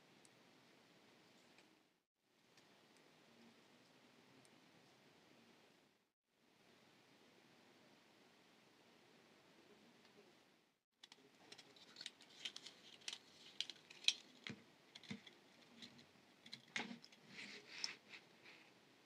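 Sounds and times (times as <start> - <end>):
wire clicking and scraping: 11.0 - 18.7.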